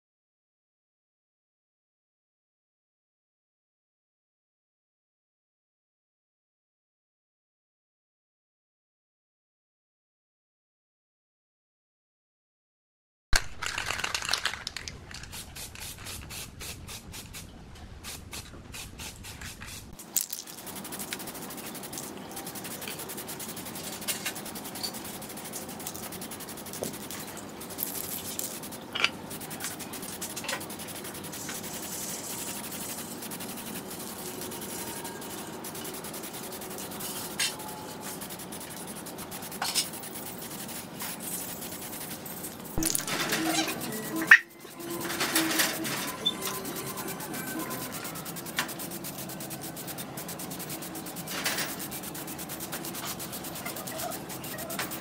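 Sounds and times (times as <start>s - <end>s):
spray can hissing: 13.6s - 55.0s
wire brush wheel scrubbing metal: 18.1s - 55.0s.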